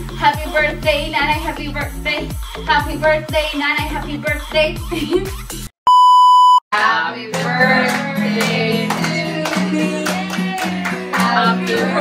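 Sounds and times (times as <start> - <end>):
music: 0.0 - 5.7, 6.8 - 12.0
electronic beep: 5.9 - 6.6
song with singing: 6.8 - 12.0.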